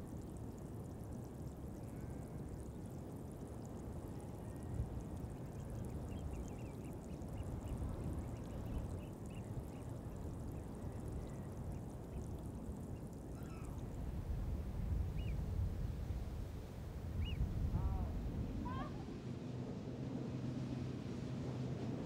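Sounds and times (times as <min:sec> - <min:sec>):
wind buffeting microphone: 0:05.8 - 0:19.4
faint high bird chirps: 0:13.4 - 0:13.8, 0:17.2 - 0:17.4.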